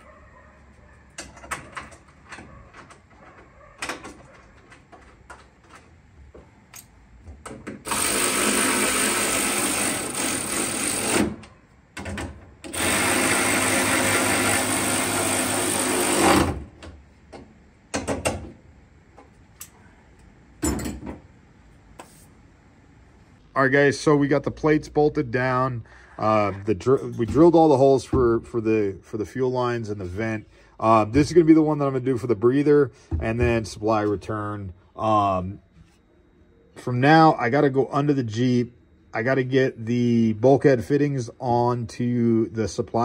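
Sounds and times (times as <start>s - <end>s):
power drill on steel plates: 7.7s - 11.4s, 12.6s - 16.6s.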